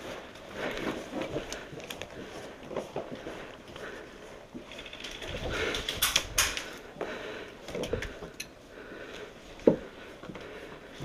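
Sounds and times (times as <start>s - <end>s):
steps crunching over rubble: 0.0s - 5.8s
sharp clicks and knocks: 4.7s - 6.8s.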